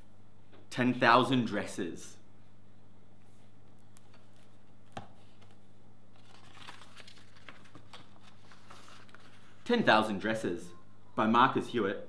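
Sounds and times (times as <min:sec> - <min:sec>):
pages rustling: 0:03.7 - 0:09.7.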